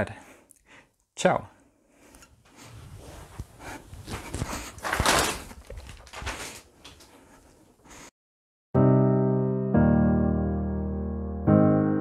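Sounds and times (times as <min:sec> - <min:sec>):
bedding and clothes rustling: 0:02.2 - 0:08.1
bed creaks: 0:02.6 - 0:07.2.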